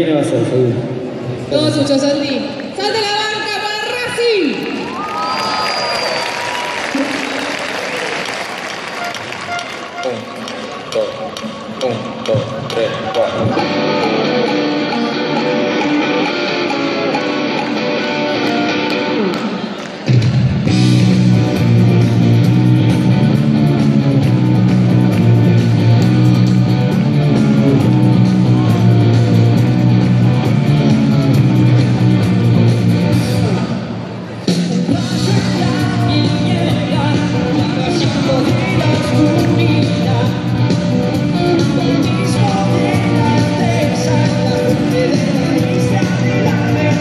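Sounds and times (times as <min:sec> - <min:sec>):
live rock band playing: 0:13.4 - 0:19.7, 0:20.4 - 0:33.6, 0:34.6 - 0:47.0
person singing: 0:34.7 - 0:47.0.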